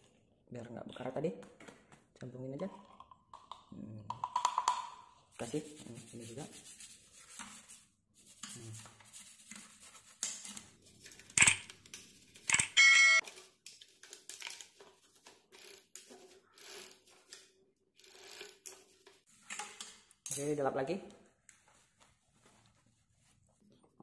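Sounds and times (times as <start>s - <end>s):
rubbing and clicking of bike parts: 5.4s - 20.6s
sharp click: 11.4s - 11.7s.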